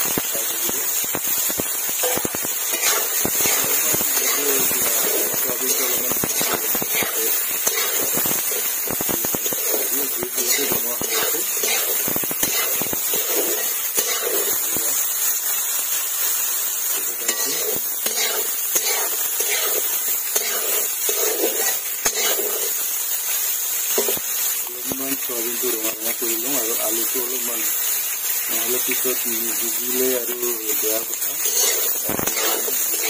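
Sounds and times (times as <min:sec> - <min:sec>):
potatoes sizzling in oil: 0:00.0 - 0:33.0
metal spatula scraping pan: 0:02.0 - 0:08.7, 0:17.2 - 0:22.8, 0:31.4 - 0:33.0.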